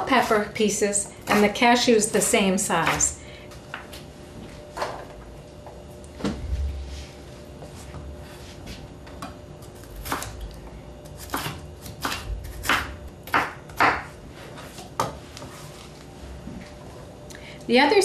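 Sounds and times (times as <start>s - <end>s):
knife chopping on wooden board: 11.2s - 14.1s.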